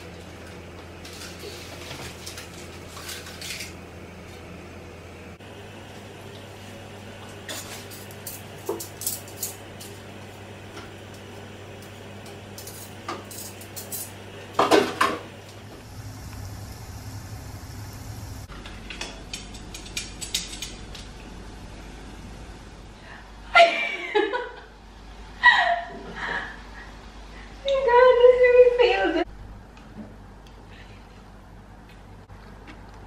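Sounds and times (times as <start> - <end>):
utensils and cookware clattering: 1.0 - 3.8, 7.4 - 10.0, 12.5 - 15.2, 18.9 - 21.1
low hum: 15.4 - 18.5, 20.9 - 23.5.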